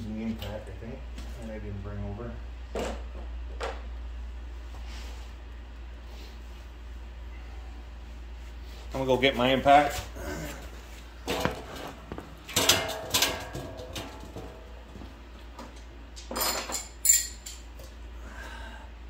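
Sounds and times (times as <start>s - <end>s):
metal tools clattering: 12.5s - 14.6s, 16.2s - 17.7s.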